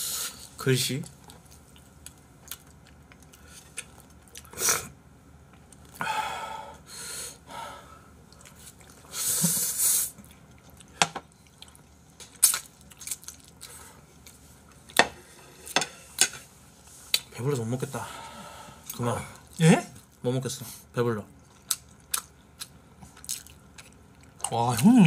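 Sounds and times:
person chewing: 1.2 - 4.6, 10.1 - 14.8, 21.4 - 25.0.

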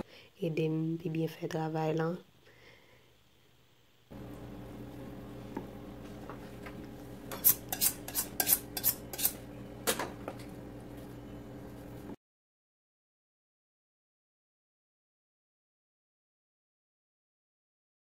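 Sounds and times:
knife honed on a steel: 7.3 - 9.4.

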